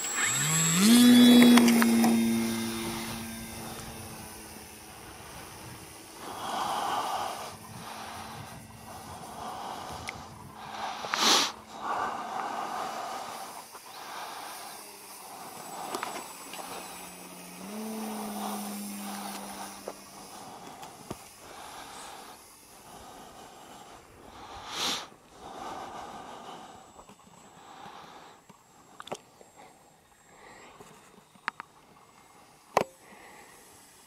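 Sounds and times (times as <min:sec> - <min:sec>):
model jet motor whirring: 0:00.0 - 0:34.0.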